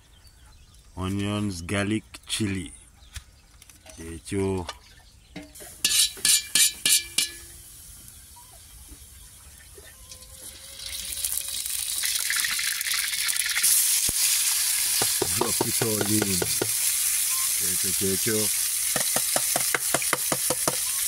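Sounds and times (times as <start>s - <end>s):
spoon clanking against wok: 5.4s - 7.5s
hot oil sizzling: 5.6s - 9.1s, 10.5s - 21.0s.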